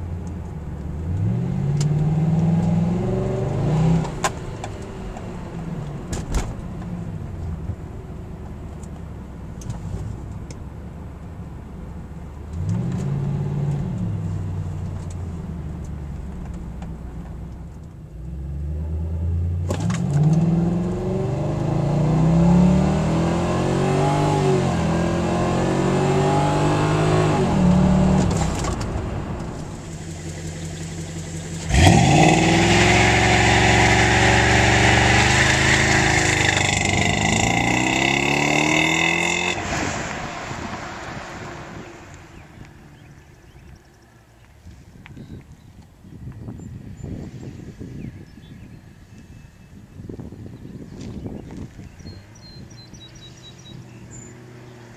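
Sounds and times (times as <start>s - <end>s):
car engine revving: 1.0s - 5.9s, 18.2s - 43.6s.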